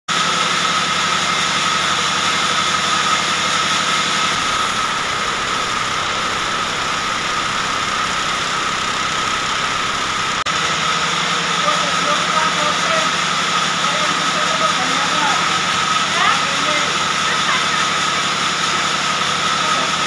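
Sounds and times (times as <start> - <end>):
band saw blade whine: 0.1 - 20.0
low hum: 1.6 - 10.6.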